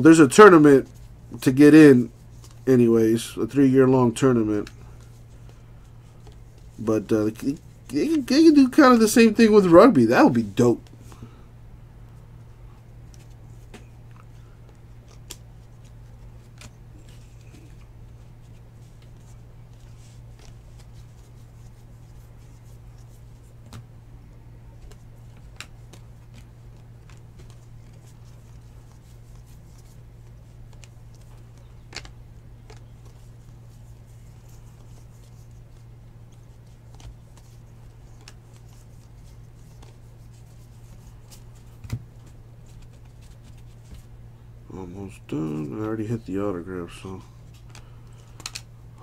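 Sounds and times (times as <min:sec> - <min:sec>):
cards sliding: 0:13.0 - 0:23.9, 0:24.8 - 0:44.1, 0:47.4 - 0:48.7
soft card clicks: 0:47.5 - 0:48.7.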